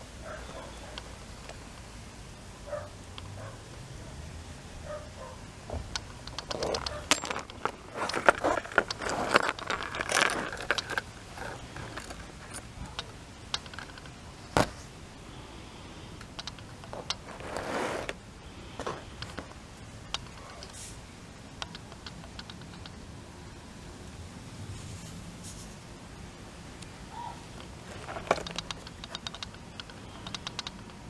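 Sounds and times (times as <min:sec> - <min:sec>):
metallic clinks and jingling: 0:06.3 - 0:14.1
paper and card rustling: 0:06.5 - 0:13.0, 0:27.6 - 0:29.2.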